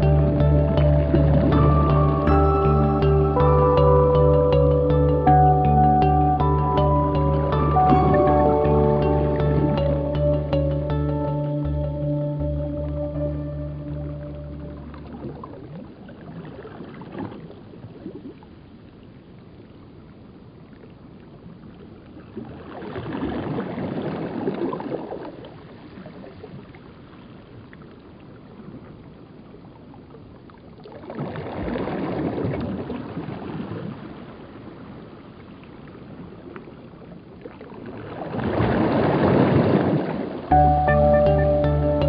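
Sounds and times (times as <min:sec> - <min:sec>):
ocean waves washing in: 0:31.0 - 0:41.2.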